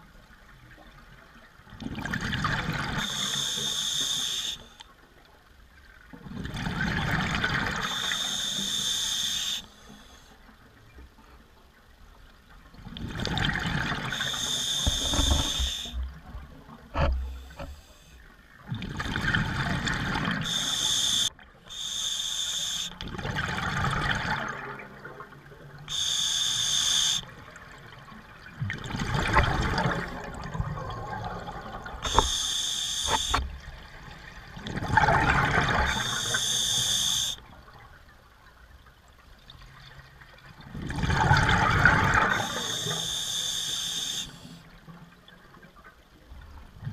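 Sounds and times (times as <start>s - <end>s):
scuba regulator breathing underwater: 2.9s - 4.8s, 7.8s - 10.2s, 14.0s - 16.1s, 20.3s - 23.0s, 25.9s - 27.3s, 32.0s - 33.5s, 35.7s - 37.4s, 42.1s - 44.6s.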